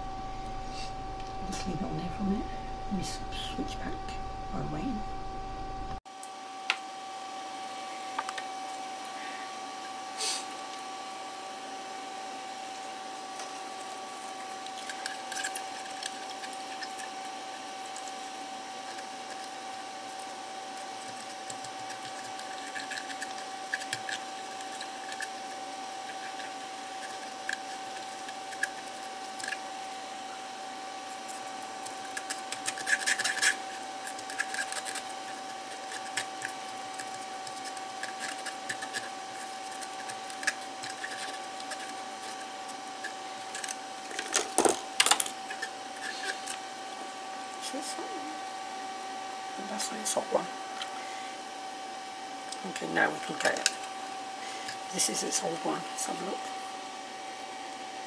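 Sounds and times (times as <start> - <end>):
small electric fan whining: 0.0 - 58.0
swab scratching circuit board: 31.0 - 43.8.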